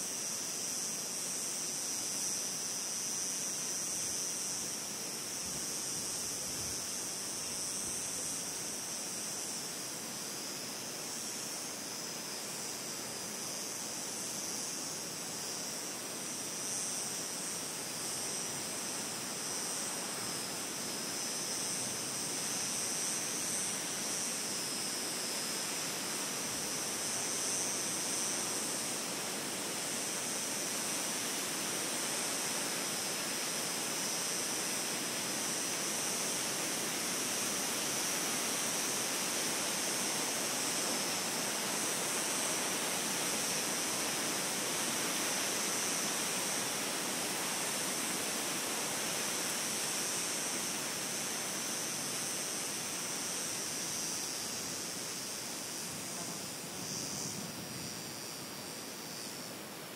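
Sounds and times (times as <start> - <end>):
high hiss: 0.0 - 59.9
rushing wind: 55.7 - 58.4.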